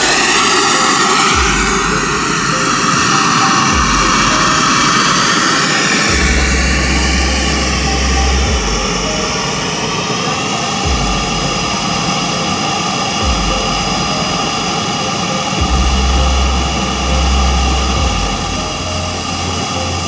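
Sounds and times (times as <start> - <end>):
model jet turbine whine: 0.0 - 20.0
low rumbles: 5.9 - 10.1, 10.8 - 14.9, 15.6 - 19.8.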